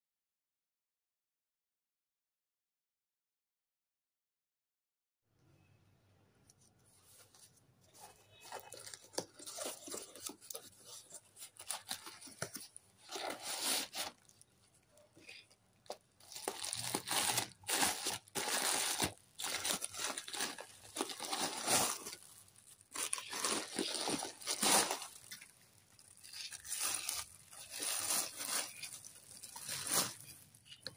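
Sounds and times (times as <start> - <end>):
plastic packaging rustling and crinkling: 7.0 - 30.9
cardboard parcel tearing: 8.4 - 14.4, 16.2 - 30.9.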